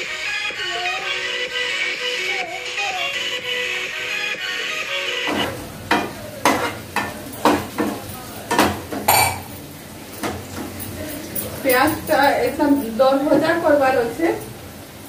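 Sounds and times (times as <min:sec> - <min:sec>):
background music: 0:00.0 - 0:05.8
onions sizzling: 0:05.3 - 0:15.0.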